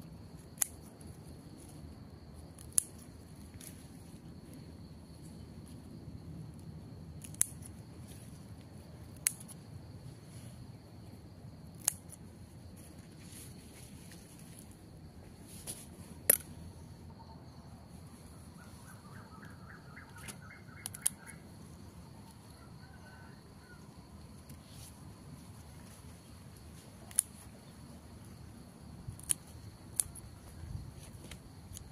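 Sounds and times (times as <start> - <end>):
scissors snipping stems: 0.4 - 0.9, 2.5 - 3.8, 7.2 - 7.7, 9.1 - 9.6, 11.7 - 12.2, 20.1 - 21.3, 27.0 - 27.5, 29.1 - 30.3.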